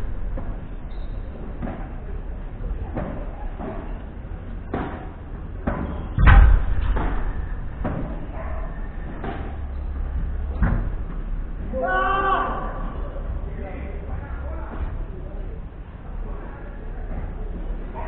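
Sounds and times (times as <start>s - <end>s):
paddle striking ball: 4.7s - 11.3s
deep thud: 5.6s - 11.8s.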